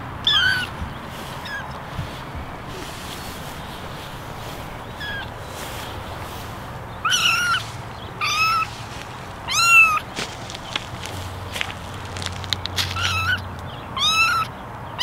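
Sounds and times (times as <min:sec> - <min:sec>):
kittens mewing: 0:04.2 - 0:05.8, 0:07.0 - 0:08.7, 0:09.4 - 0:10.1, 0:12.0 - 0:13.4, 0:14.0 - 0:14.5.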